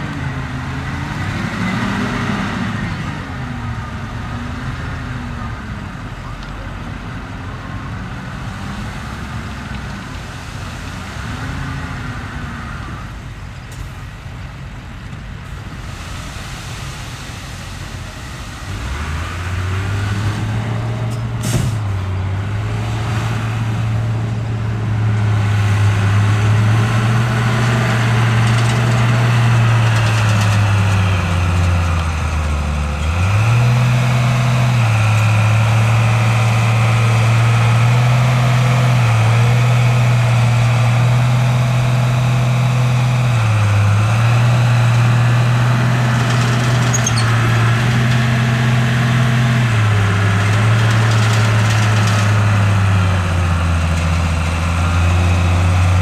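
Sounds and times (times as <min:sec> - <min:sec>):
heavy diesel engine under load: 0:00.0 - 0:56.0.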